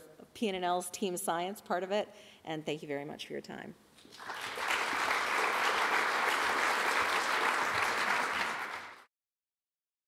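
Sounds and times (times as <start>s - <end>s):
audience applauding: 4.1s - 9.1s.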